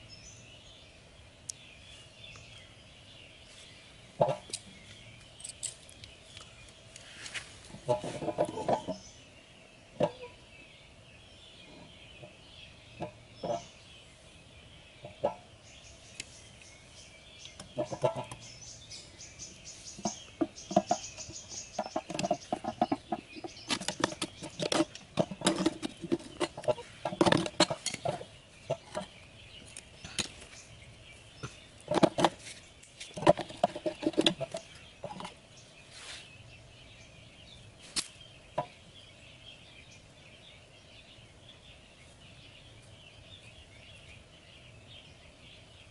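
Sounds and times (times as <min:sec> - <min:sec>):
clicks taps and scrapes: 0:20.0 - 0:30.6, 0:31.4 - 0:35.4.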